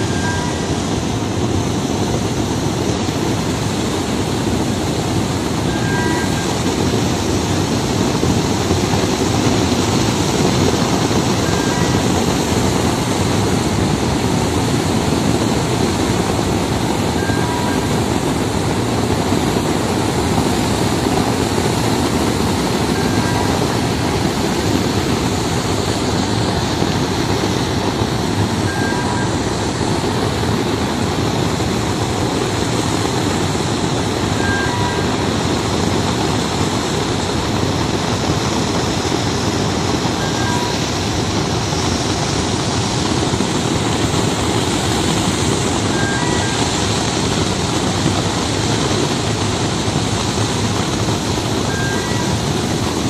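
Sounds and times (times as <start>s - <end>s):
short beep: 0.0s - 0.8s, 5.7s - 6.6s, 11.4s - 12.1s, 17.2s - 18.0s, 22.9s - 23.8s, 28.6s - 29.4s, 34.4s - 35.2s, 40.2s - 40.8s, 45.9s - 46.7s, 51.7s - 52.3s
loader machinery running: 0.0s - 53.0s.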